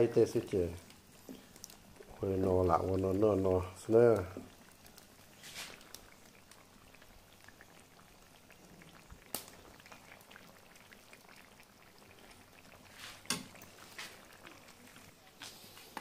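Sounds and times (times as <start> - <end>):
stew bubbling in a wok: 0.0 - 16.0.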